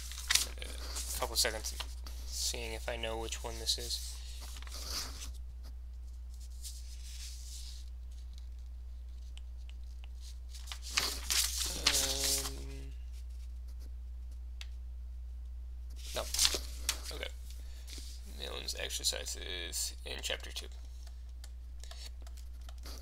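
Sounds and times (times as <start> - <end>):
low electrical hum: 0.0 - 23.0
man murmuring: 11.6 - 13.0.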